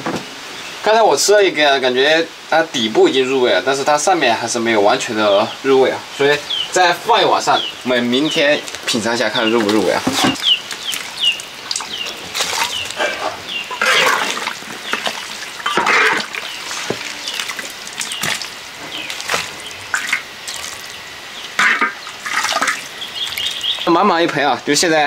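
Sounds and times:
bird chirps: 5.3 - 15.1, 15.7 - 20.2, 22.8 - 24.0
liquid splashing: 6.2 - 23.9.

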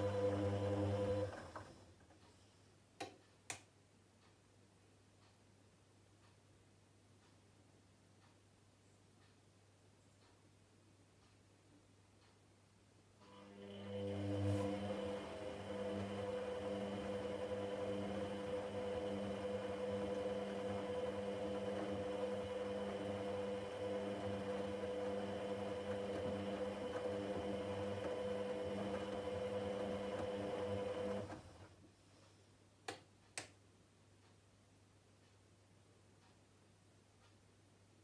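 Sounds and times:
washing machine humming: 0.0 - 1.8, 13.4 - 31.7.

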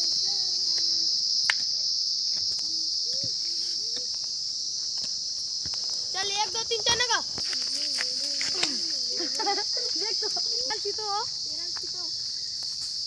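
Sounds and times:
distant children's voices: 0.0 - 1.2, 2.5 - 4.4, 6.1 - 12.3
insects shrilling: 0.0 - 13.0.

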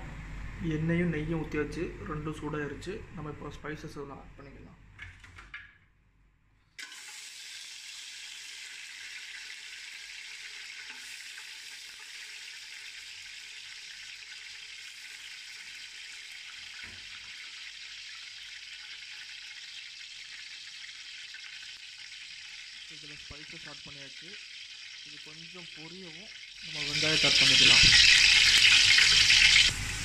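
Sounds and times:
spices sizzling in hot oil: 6.8 - 30.0.

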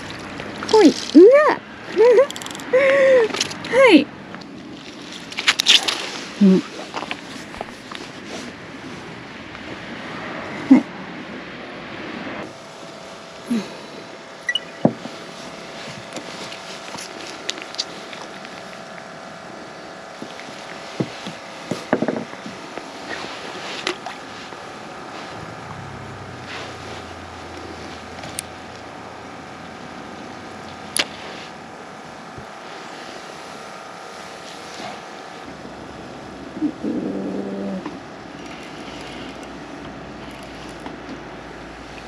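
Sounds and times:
steady mechanical drone: 0.0 - 42.0
fishing tackle clicking and knocking: 2.3 - 2.7
deep hum: 24.7 - 31.0.

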